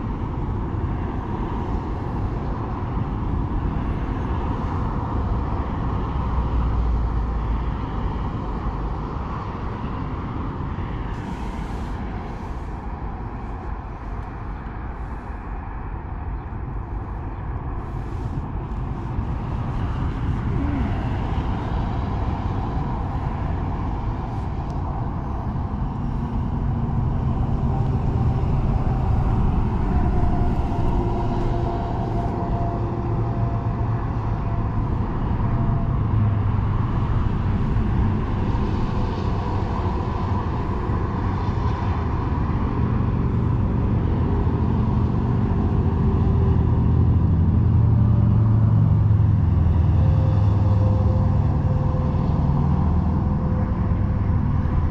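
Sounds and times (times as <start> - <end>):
road traffic rumble: 0.0 - 54.9.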